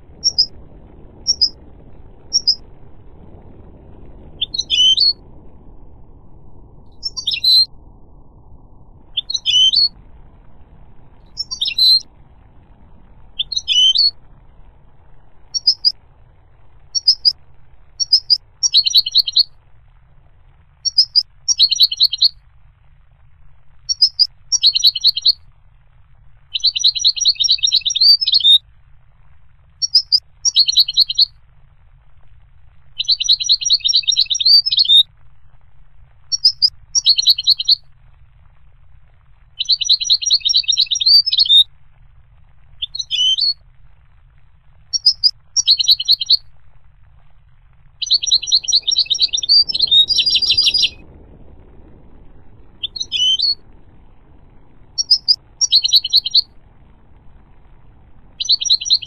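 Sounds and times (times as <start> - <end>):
faint low hum: 0.0 - 59.0
bird twittering song: 0.2 - 0.5, 1.2 - 1.6, 2.3 - 2.6, 4.3 - 5.2, 6.9 - 7.7, 9.1 - 10.0, 11.3 - 12.1, 13.3 - 14.2, 15.4 - 16.0, 16.8 - 17.4, 18.0 - 19.5, 20.8 - 22.4, 23.8 - 25.4, 26.5 - 28.6, 29.8 - 31.3, 33.0 - 35.0, 36.3 - 37.8, 39.6 - 41.7, 42.8 - 43.6, 44.9 - 46.4, 48.0 - 51.0, 52.8 - 53.6, 54.9 - 56.5, 58.4 - 59.0.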